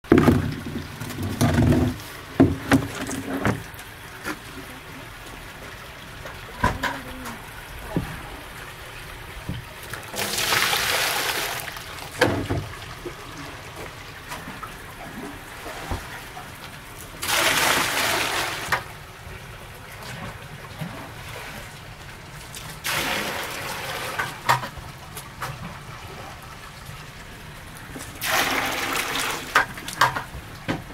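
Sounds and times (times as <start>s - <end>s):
water sloshing and splashing: 0.0s - 30.9s
fish slapping water: 9.8s - 12.5s, 14.4s - 18.9s, 28.0s - 30.4s.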